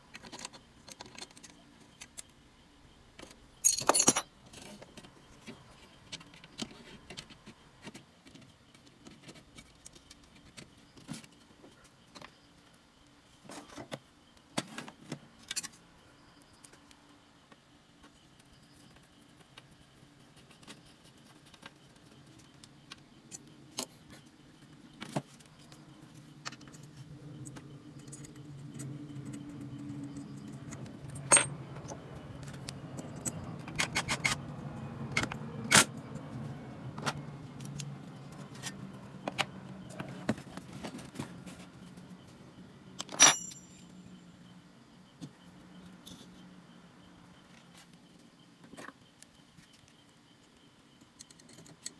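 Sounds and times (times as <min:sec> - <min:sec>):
metal parts clicking and clinking: 0:03.2 - 0:04.8, 0:28.0 - 0:34.4, 0:43.0 - 0:43.9.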